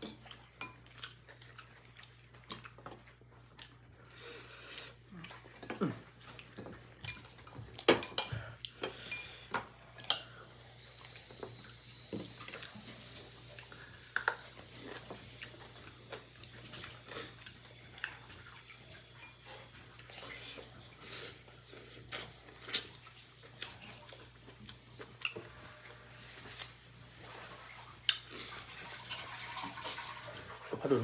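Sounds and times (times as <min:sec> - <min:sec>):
cutlery clinking on ceramic plates: 0:07.0 - 0:10.3.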